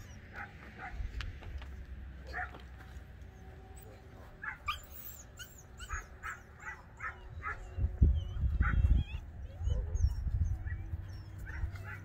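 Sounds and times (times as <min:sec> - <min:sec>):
dog yipping and whining: 0:04.4 - 0:12.0.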